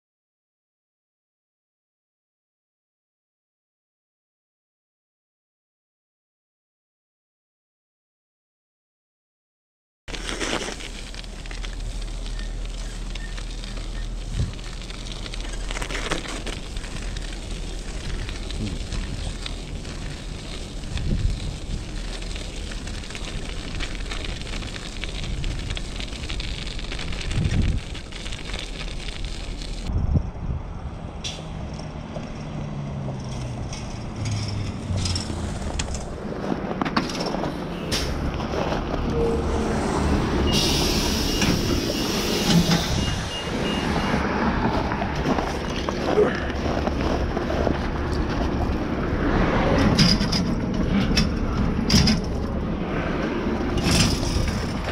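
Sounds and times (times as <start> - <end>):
bicycle tyres crunching on ice: 10.1 - 29.9, 32.7 - 54.9
low riding rumble: 10.1 - 54.9
bus engine humming: 10.5 - 27.0, 30.9 - 54.9.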